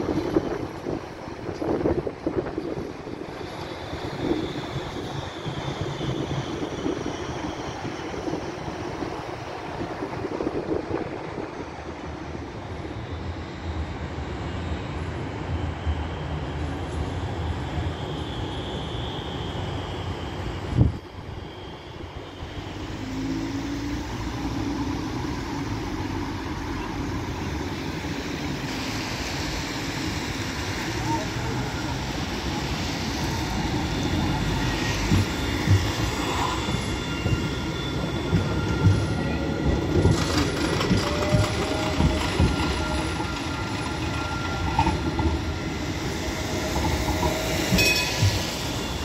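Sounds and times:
tram rumbling on rails: 0.0 - 49.0.

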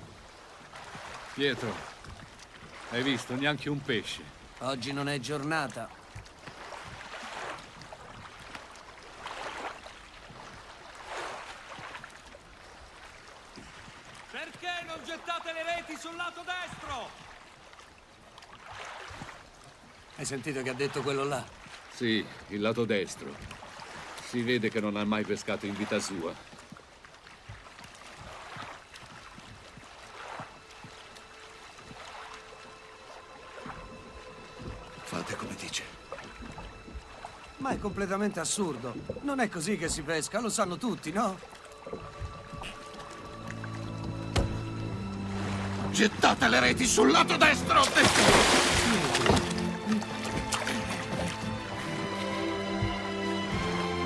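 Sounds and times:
water splashing around boat: 0.0 - 54.0
faint low knocks: 41.7 - 45.2.

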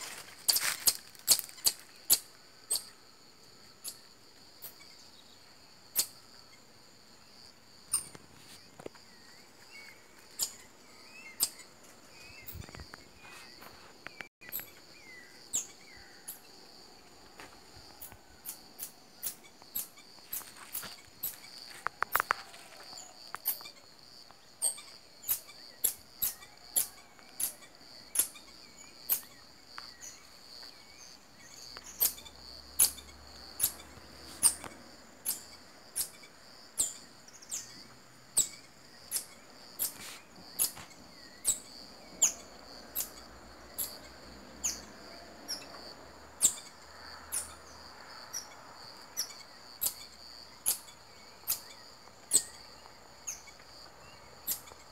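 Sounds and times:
insect trill: 0.0 - 54.9
marmoset high-pitched calls: 46.4 - 46.7, 50.6 - 52.6.

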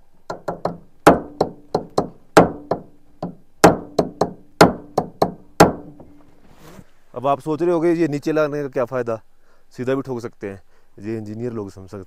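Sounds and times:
hammer striking metal: 0.4 - 6.1.

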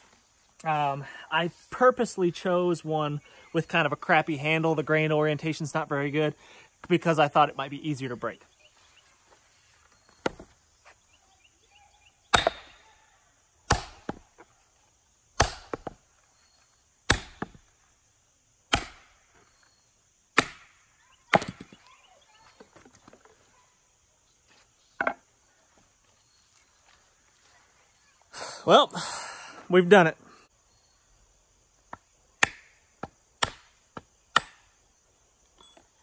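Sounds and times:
axe striking wooden stump: 12.3 - 12.8, 13.7 - 14.3, 15.4 - 16.0, 17.1 - 17.6, 18.7 - 19.2, 20.4 - 21.7, 32.4 - 34.7.

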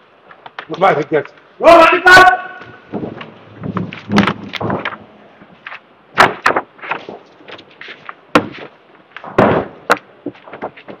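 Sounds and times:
chairs and furniture being moved: 2.6 - 5.6.

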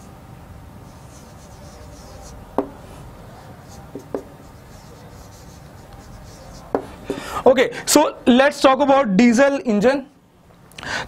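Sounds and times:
marker scratching on whiteboard: 0.8 - 7.1
marker tapping on board: 1.6 - 2.8, 3.7 - 4.4, 5.3 - 6.9.

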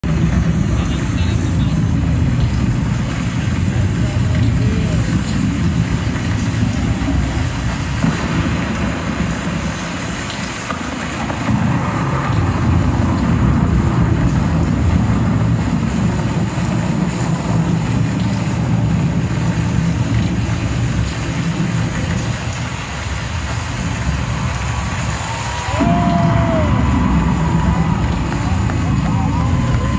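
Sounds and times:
arena crowd roaring: 24.0 - 29.9.

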